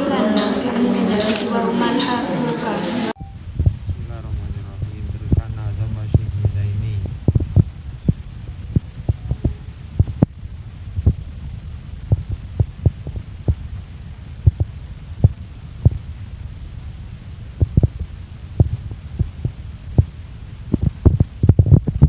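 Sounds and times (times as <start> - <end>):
microphone buffeting thumps: 3.5 - 11.3, 12.1 - 13.8, 14.4 - 16.1, 17.6 - 22.0.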